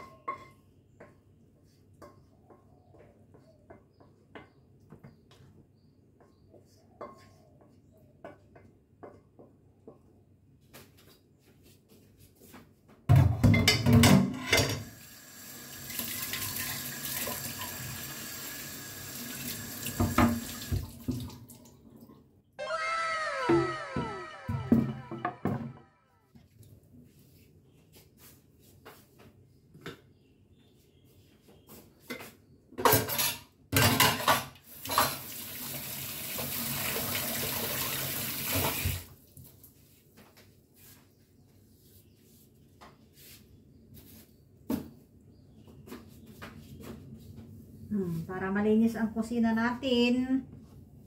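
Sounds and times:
dishes clattering in sink: 13.1s - 15.0s, 19.9s - 21.3s, 32.8s - 35.4s
tap running into sink: 19.3s - 21.4s, 34.8s - 39.1s.

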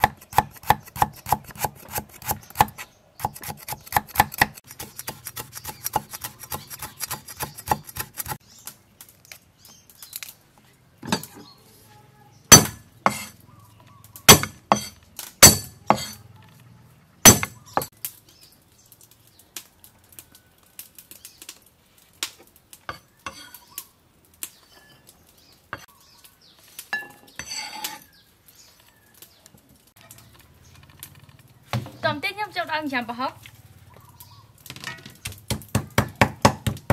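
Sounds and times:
cleaver chopping on wooden block: 0.0s - 8.4s, 12.5s - 13.3s, 14.3s - 16.2s, 17.2s - 17.9s, 35.5s - 36.9s.

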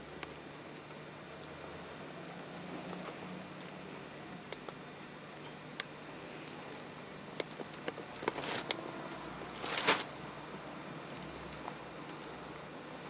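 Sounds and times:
steady faint hiss: 0.0s - 13.0s.

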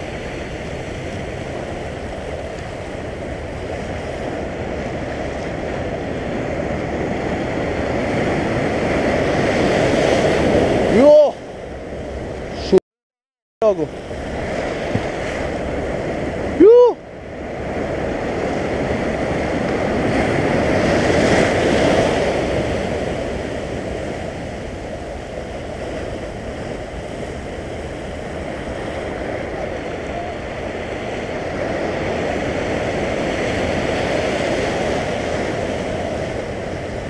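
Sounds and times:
surf washing over rocks: 0.0s - 12.8s, 13.6s - 37.0s.

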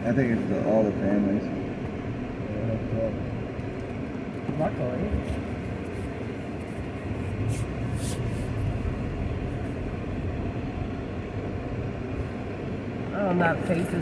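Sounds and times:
car engine and tyres rumble: 0.0s - 14.0s
hissy rustles: 5.1s - 9.8s.

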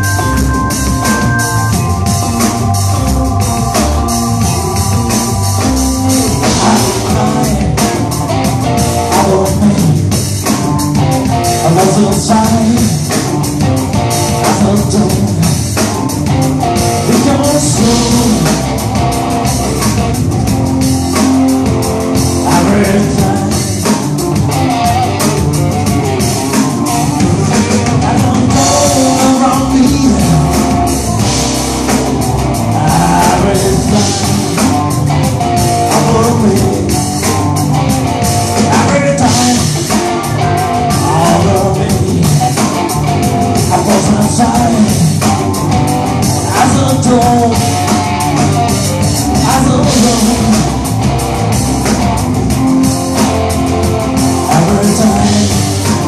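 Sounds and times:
drum kit: 0.0s - 56.0s
electric bass: 0.0s - 56.0s
electric guitar: 0.0s - 56.0s
organ chords: 0.0s - 56.0s
man singing: 6.3s - 10.7s, 11.4s - 15.8s, 17.0s - 18.8s, 22.3s - 24.2s, 26.7s - 31.1s, 32.7s - 35.0s, 35.6s - 37.4s, 38.6s - 45.5s, 46.2s - 48.0s, 48.8s - 51.0s, 54.4s - 56.0s.

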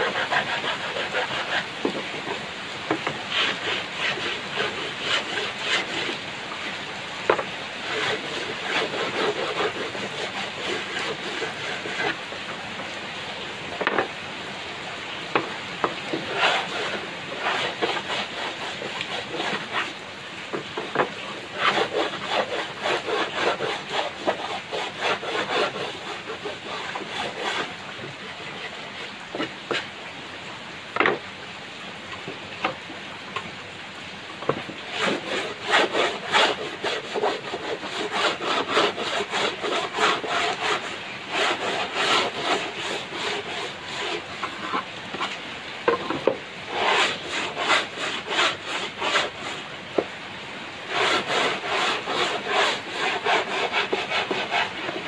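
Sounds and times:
wooden block scraping on plank: 0.0s - 12.5s, 13.8s - 14.1s, 15.3s - 29.9s, 31.0s - 31.2s, 34.4s - 50.1s, 50.9s - 55.0s
wooden knocks: 1.8s - 3.2s, 7.3s - 7.5s, 13.8s - 14.1s, 20.5s - 21.2s, 31.0s - 31.2s, 44.4s - 46.4s.

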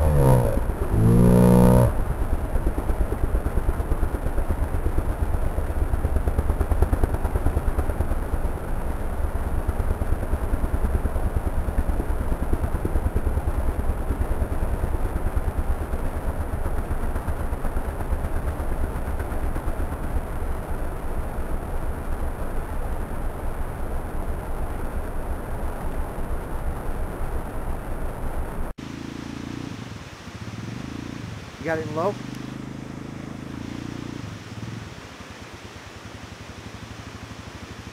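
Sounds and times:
rushing creek: 29.3s - 37.9s.

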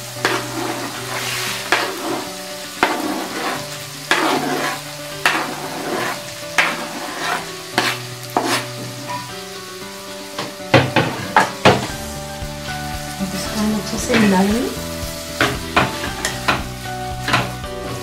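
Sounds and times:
food sizzling in pan: 0.0s - 18.0s
knife scraping cutting board: 3.4s - 8.9s.

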